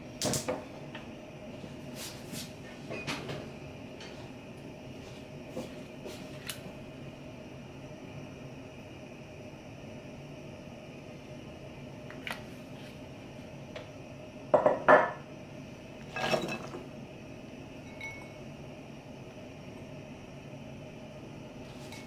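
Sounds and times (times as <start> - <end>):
kitchenware clinking: 16.1 - 16.8.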